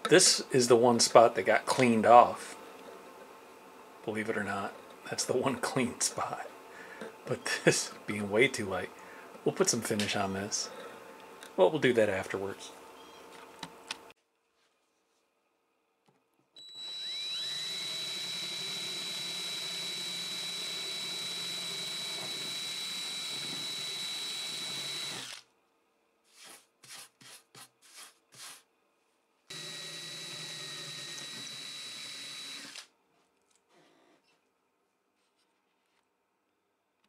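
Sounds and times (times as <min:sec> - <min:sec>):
electric drill whine: 0:16.6 - 0:25.4, 0:29.5 - 0:32.9.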